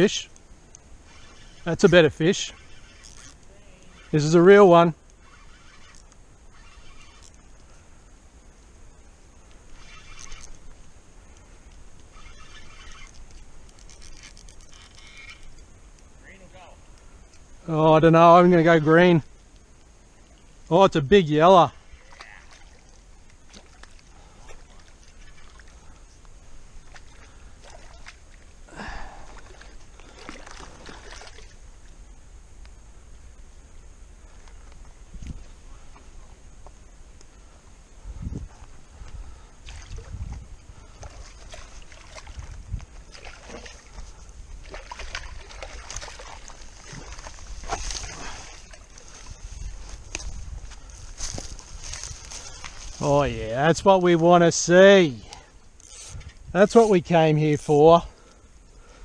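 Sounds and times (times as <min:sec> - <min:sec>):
fish splashing in water: 0:43.1 - 0:44.0, 0:44.6 - 0:49.0.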